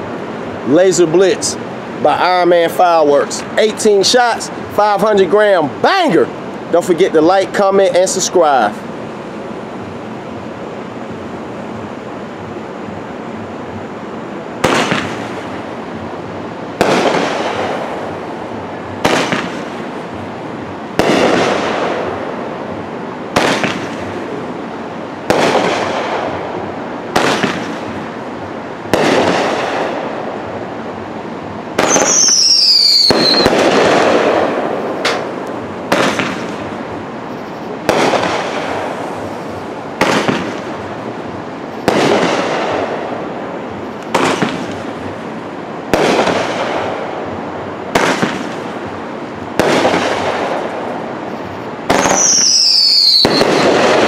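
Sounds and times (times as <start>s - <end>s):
firework bangs with hiss: 14.5s - 24.6s, 25.2s - 30.6s, 31.7s - 54.0s
falling firework whistle: 31.8s - 35.3s, 51.3s - 54.0s.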